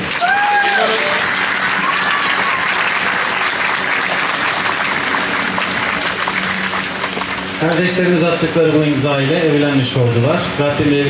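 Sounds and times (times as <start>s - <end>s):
people applauding: 0.0s - 8.4s.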